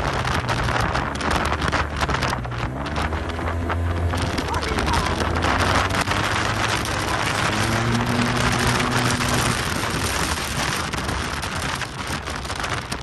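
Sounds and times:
scooter engine hum: 0.0 - 13.0
wind rushing over microphone: 0.0 - 13.0.

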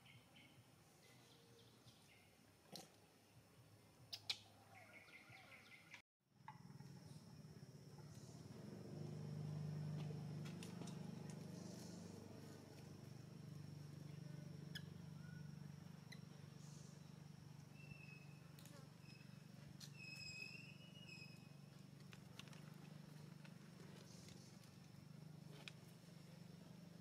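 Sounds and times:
steady low hum: 6.4 - 27.0
high whistle-like calls: 19.9 - 21.6.

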